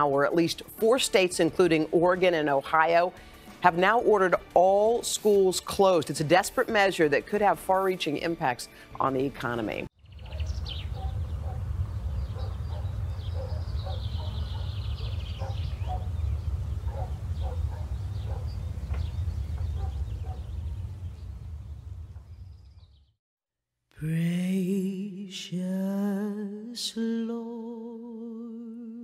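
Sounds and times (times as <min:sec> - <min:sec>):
high trilling bird call: 0:10.0 - 0:20.7
steady low rumble: 0:10.0 - 0:23.0
birds calling: 0:10.0 - 0:23.2.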